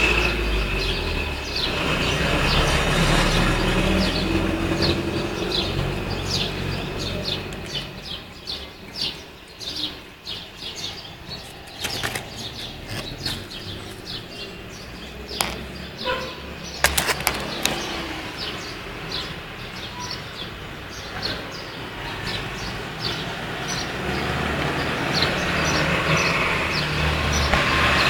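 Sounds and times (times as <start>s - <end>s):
small bird chirping: 4.8s - 23.9s
sharp clicks: 15.4s - 15.7s, 16.8s - 18.0s.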